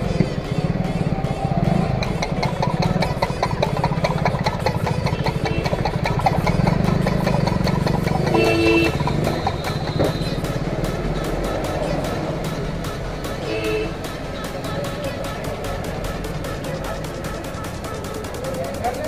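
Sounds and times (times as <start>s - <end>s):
engine idling: 0.0s - 19.0s
horn-like tone: 8.3s - 10.3s.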